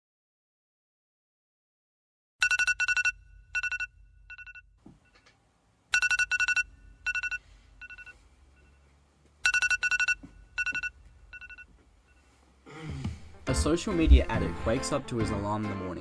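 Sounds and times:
phone alarm beeping: 0:02.4 - 0:05.3, 0:05.9 - 0:12.4.

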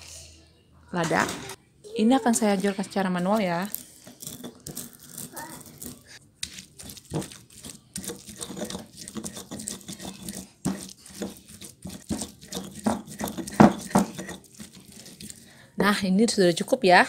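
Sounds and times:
stone pestle grinding in mortar: 0:02.4 - 0:15.5
pestle knocking on stone: 0:06.8 - 0:15.1.

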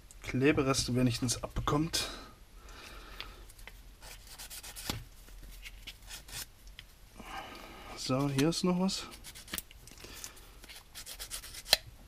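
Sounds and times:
needle file scraping: 0:04.0 - 0:05.0, 0:09.1 - 0:09.6, 0:10.6 - 0:11.8.

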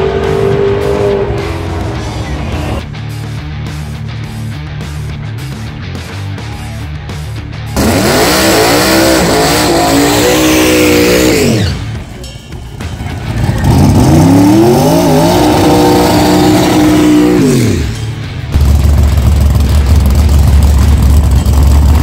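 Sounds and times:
drag car engine revving: 0:00.0 - 0:02.8, 0:07.8 - 0:12.1, 0:13.0 - 0:22.0
tires spinning and squealing: 0:07.8 - 0:12.0, 0:13.2 - 0:18.0.

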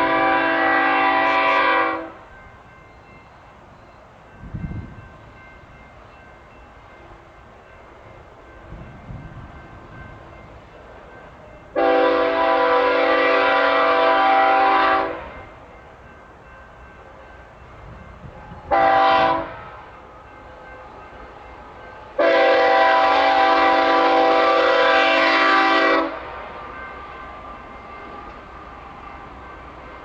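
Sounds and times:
locomotive air horn blast: 0:00.0 - 0:02.2, 0:11.8 - 0:15.3, 0:18.7 - 0:19.8, 0:22.2 - 0:26.3.

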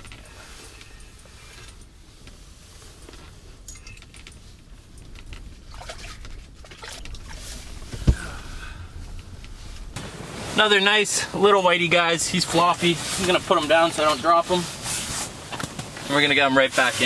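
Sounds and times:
water sloshing: 0:04.9 - 0:10.7.

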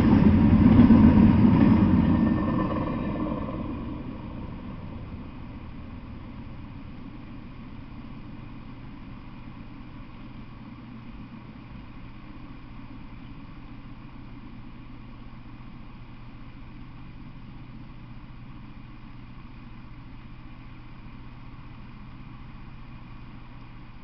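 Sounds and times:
freight train rumble: 0:00.0 - 0:11.5
steady low hum: 0:00.0 - 0:24.0.

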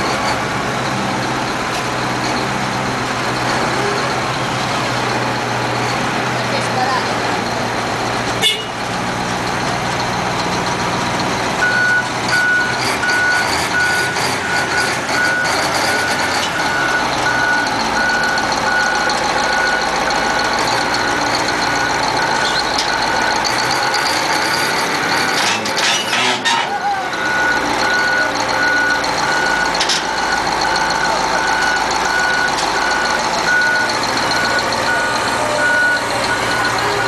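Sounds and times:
diesel engine under load: 0:00.0 - 0:37.0
reversing alarm beeping: 0:11.6 - 0:25.6, 0:26.5 - 0:37.0.

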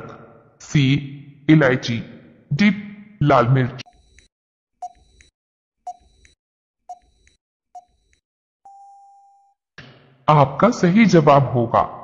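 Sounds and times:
long steady beep: 0:08.7 - 0:09.5.

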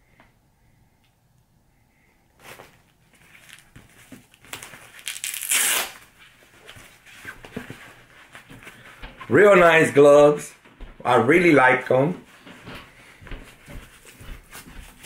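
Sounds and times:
rustling and crinkling: 0:02.4 - 0:15.0
loud tearing rip: 0:05.0 - 0:06.0.

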